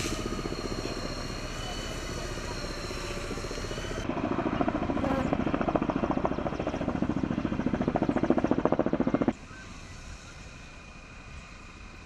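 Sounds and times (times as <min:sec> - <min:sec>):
high steady whine: 0:00.0 - 0:04.2, 0:08.7 - 0:12.0.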